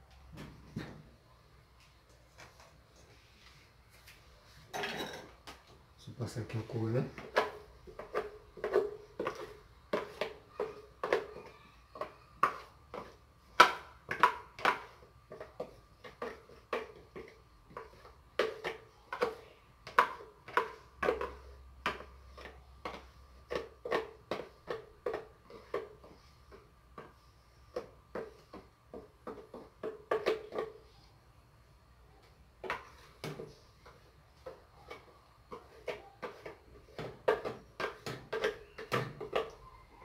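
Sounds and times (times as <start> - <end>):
spoon knocking and scraping container: 7.1 - 30.9, 32.6 - 39.7.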